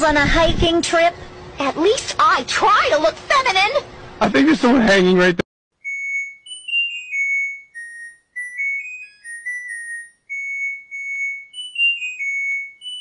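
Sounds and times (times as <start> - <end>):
washing machine beep melody: 5.8 - 13.0.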